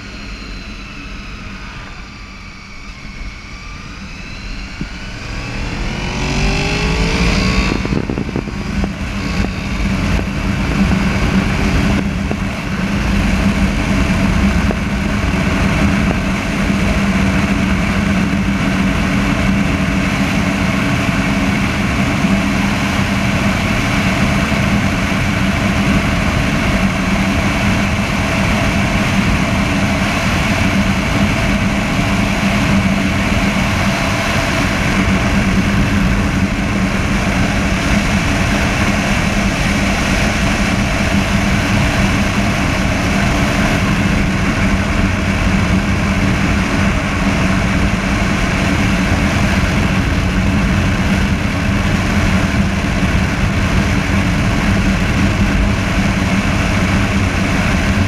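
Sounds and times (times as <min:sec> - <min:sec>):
wind rushing: 0:00.0 - 0:18.0
road noise: 0:00.0 - 0:54.7
motorcycle engine cruising: 0:00.0 - 0:55.8
wind buffeting microphone: 0:00.0 - 0:58.0.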